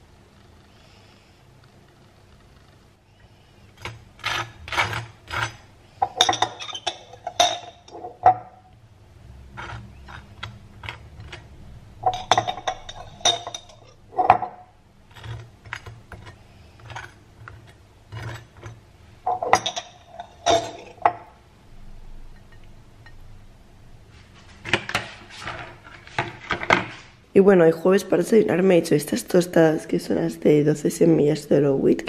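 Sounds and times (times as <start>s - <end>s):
knife scraping on plate: 3.8s - 8.2s, 9.5s - 11.4s, 15.1s - 21.1s.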